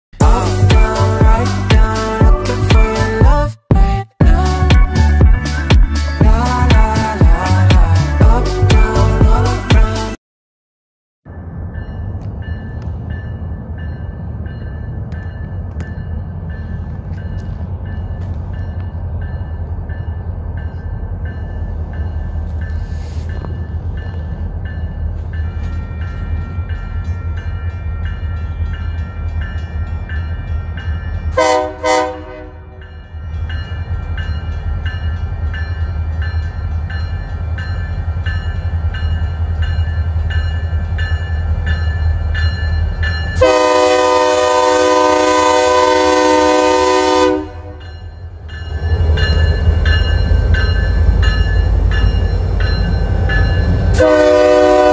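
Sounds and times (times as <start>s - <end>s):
locomotive engine rumble: 0.2s - 10.2s, 11.3s - 54.9s
locomotive bell ringing: 11.3s - 54.9s
train horn blasts: 31.4s - 32.8s, 43.4s - 47.8s, 53.9s - 54.9s.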